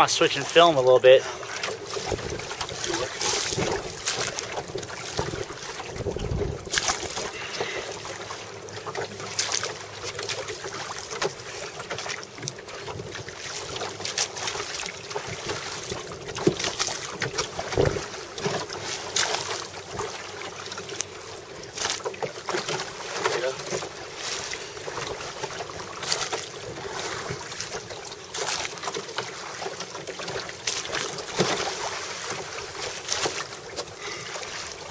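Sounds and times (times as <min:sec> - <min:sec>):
water slapping against wooden hull: 0:00.0 - 0:34.9
wind buffeting microphone: 0:01.9 - 0:07.4, 0:17.6 - 0:18.1.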